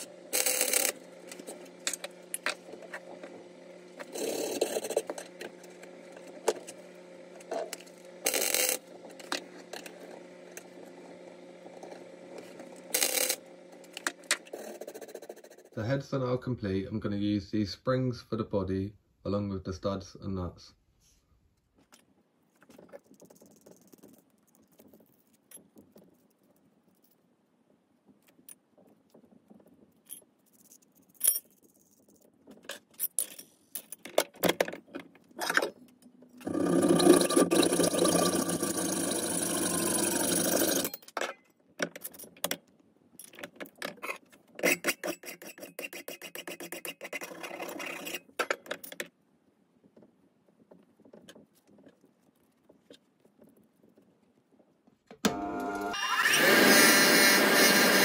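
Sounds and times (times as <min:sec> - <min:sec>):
saw cutting through metal: 0:36.4 - 0:41.0, 0:55.4 - 0:58.0.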